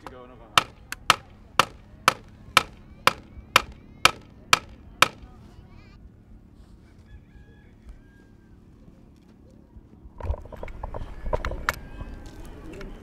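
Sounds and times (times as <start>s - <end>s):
hammer striking wooden stake: 0.0s - 5.3s.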